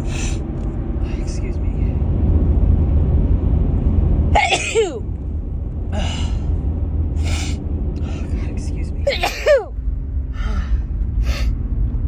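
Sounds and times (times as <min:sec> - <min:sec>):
steady low hum: 0:00.0 - 0:12.0
woman sneezing: 0:09.1 - 0:09.7.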